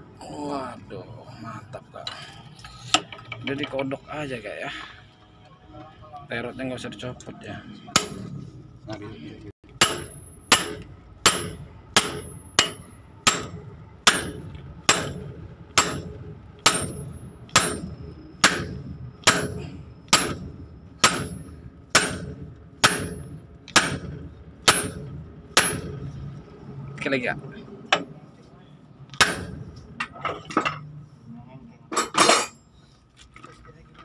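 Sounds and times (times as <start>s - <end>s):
hammer striking steel pipe: 7.9s - 8.4s, 9.8s - 26.0s, 29.2s - 29.8s.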